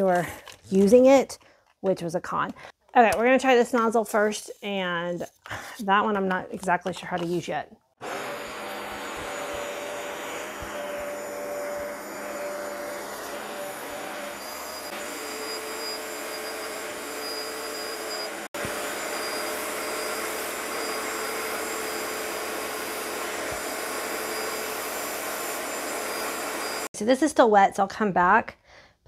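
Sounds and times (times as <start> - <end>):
carpet cleaner running: 8.0 - 26.9.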